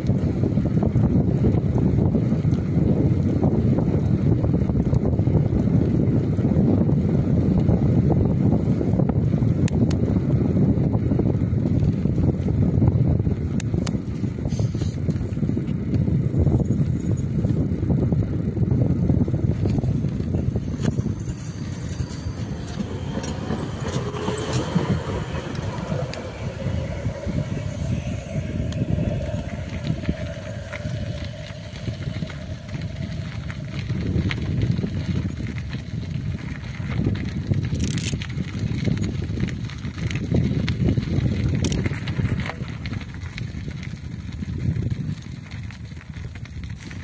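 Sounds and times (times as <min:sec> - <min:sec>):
wind buffeting microphone: 0:00.0 - 0:47.0
faint whine: 0:19.3 - 0:37.5
clicks and rattles: 0:37.7 - 0:38.3.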